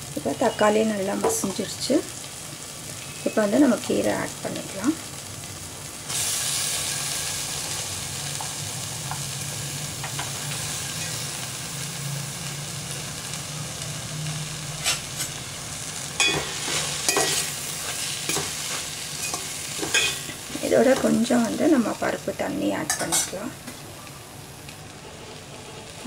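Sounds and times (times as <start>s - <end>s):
leaves sizzling in a pot: 0.0s - 26.0s.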